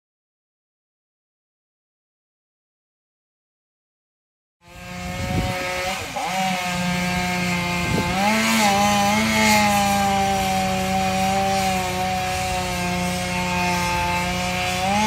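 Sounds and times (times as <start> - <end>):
chainsaw cutting wood: 4.6 - 15.0.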